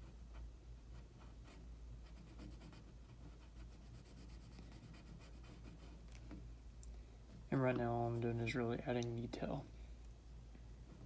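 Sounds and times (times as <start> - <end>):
pencil scratching on paper: 0.0 - 6.4.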